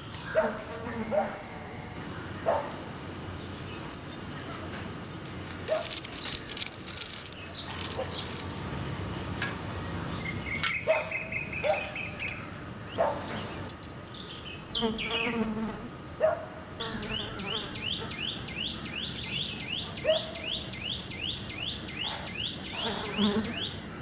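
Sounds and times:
insects buzzing: 0.0s - 24.0s
objects clicking on wooden table: 3.6s - 10.9s.

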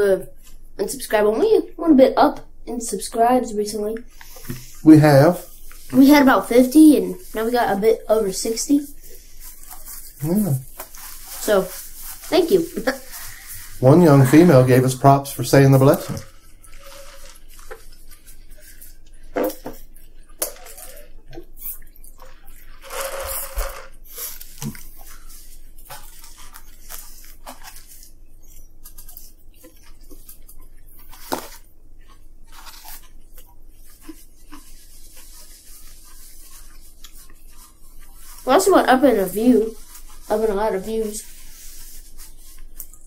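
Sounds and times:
paper crinkle: 5.4s - 19.2s, 20.1s - 43.0s
paper boxes rustling: 9.5s - 18.0s
chewing: 24.2s - 38.5s, 42.5s - 43.0s.

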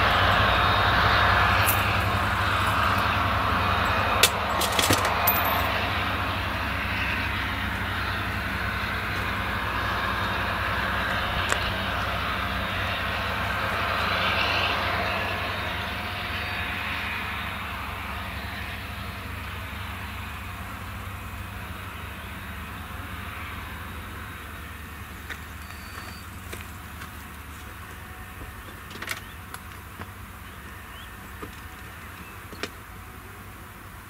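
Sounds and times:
forage harvester engine droning: 0.0s - 34.0s
tractor hauling trailer: 0.0s - 34.0s.

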